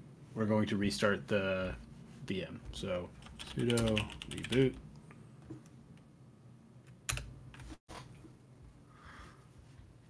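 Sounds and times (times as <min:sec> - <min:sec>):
computer keyboard clicks: 0:03.2 - 0:04.7.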